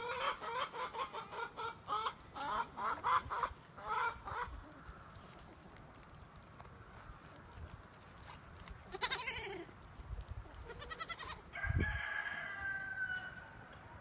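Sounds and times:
goats bleating: 8.9s - 9.7s, 10.6s - 11.4s
rooster crowing: 11.5s - 13.6s.

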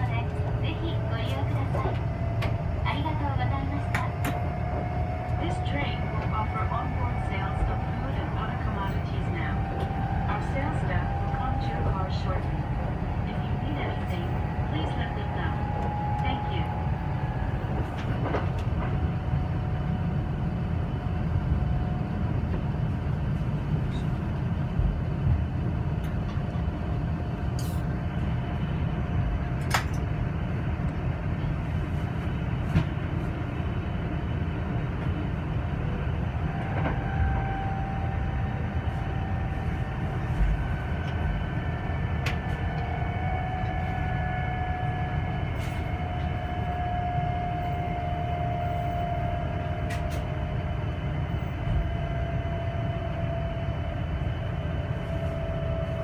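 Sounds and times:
train wheels rumbling on track: 0.0s - 56.0s.

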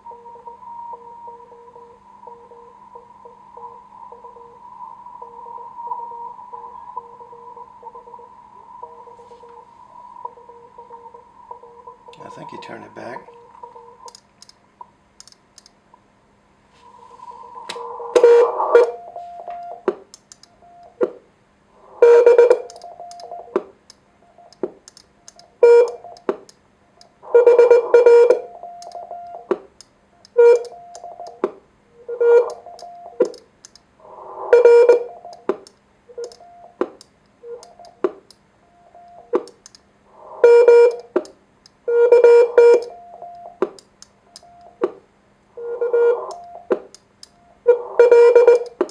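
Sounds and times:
morse code beeping tones: 6.6s - 14.1s, 18.2s - 19.9s, 20.6s - 21.0s, 22.0s - 23.6s, 25.6s - 26.2s, 27.3s - 29.5s, 30.4s - 31.4s, 32.1s - 33.4s, 36.1s - 36.8s, 38.7s - 39.4s, 40.4s - 41.2s, 41.9s - 43.6s, 44.3s - 44.8s, 45.6s - 48.9s.

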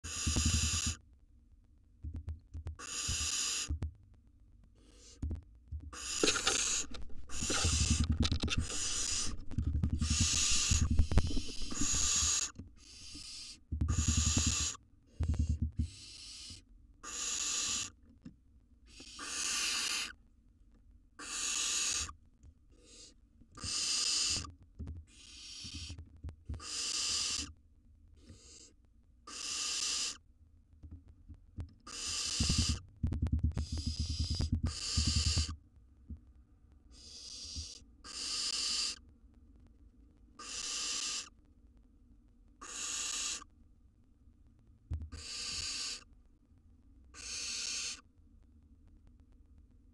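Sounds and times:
owl nestlings hissing begging calls: 0.0s - 1.0s, 2.8s - 3.7s, 6.0s - 14.8s, 15.8s - 17.9s, 18.9s - 20.2s, 21.2s - 22.1s, 22.8s - 24.5s, 25.1s - 25.9s, 26.6s - 27.5s, 29.3s - 30.2s, 31.9s - 32.8s, 33.6s - 35.5s, 36.9s - 39.0s, 40.4s - 41.3s, 42.6s - 43.5s, 45.1s - 46.0s, 47.2s - 48.0s.

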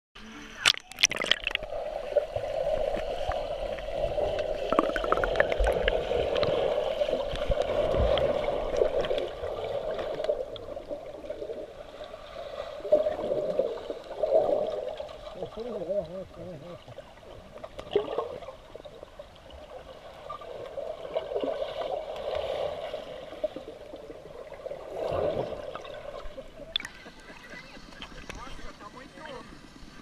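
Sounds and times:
muffled underwater water rush: 0.2s - 30.0s
sharp splashes: 0.6s - 1.8s
bubbling and splashing from swim strokes: 0.6s - 28.6s.

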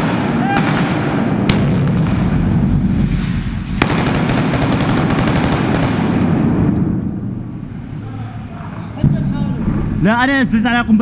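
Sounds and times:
rapid gunfire indoors: 0.0s - 7.0s.

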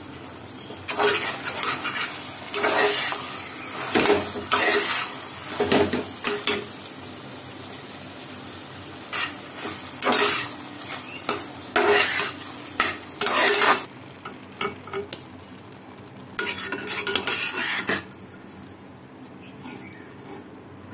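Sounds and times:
faint sizzle: 0.0s - 20.9s
metal spatula scraping a pan: 0.9s - 6.7s, 9.0s - 13.9s, 16.3s - 18.1s, 19.6s - 20.5s.

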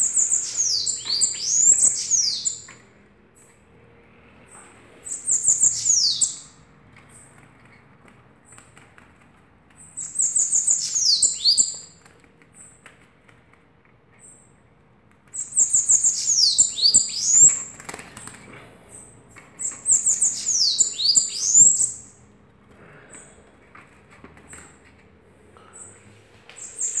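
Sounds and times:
bird singing high-pitched songs: 0.0s - 2.8s, 5.0s - 7.3s, 9.8s - 12.0s, 15.3s - 17.7s, 18.9s - 22.2s, 26.6s - 27.0s.

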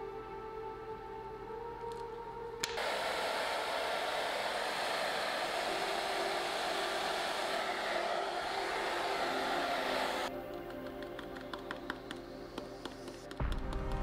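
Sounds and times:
hot-air blower running: 2.6s - 10.4s.

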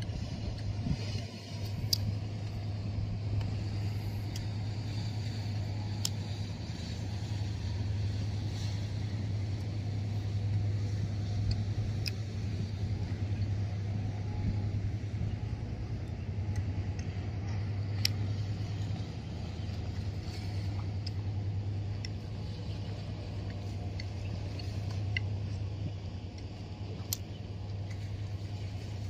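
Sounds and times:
ship engine drone: 0.0s - 29.0s
faint clicks: 10.4s - 12.4s.

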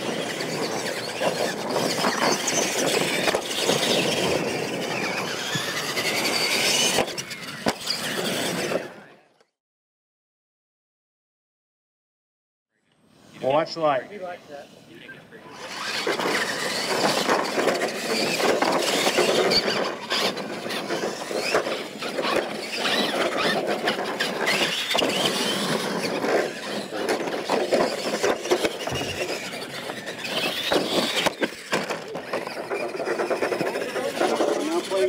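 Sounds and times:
trucks knocking and clattering: 0.0s - 8.9s, 15.7s - 35.0s
toy truck motors whining: 0.0s - 9.6s, 15.4s - 35.0s.

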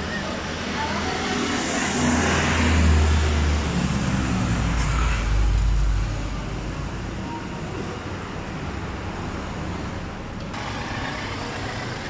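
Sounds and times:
vehicle engine rumble passing: 0.0s - 7.2s.

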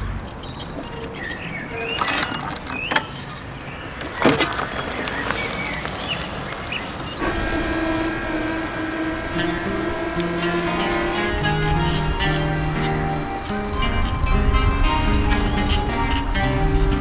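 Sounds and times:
birds chirping: 0.0s - 17.0s
music with held tones: 7.2s - 17.0s.

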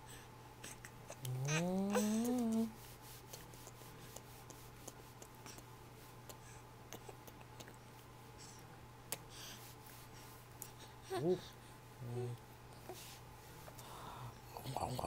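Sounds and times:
woman humming: 1.1s - 2.8s.

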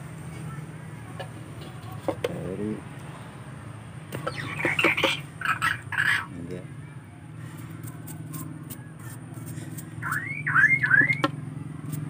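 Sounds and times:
quick rising whistles: 10.0s - 11.2s.

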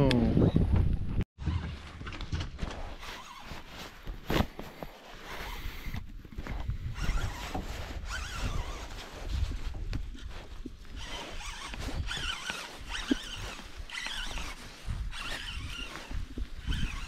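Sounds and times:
fishing reel clicking and rasping: 10.9s - 17.0s.

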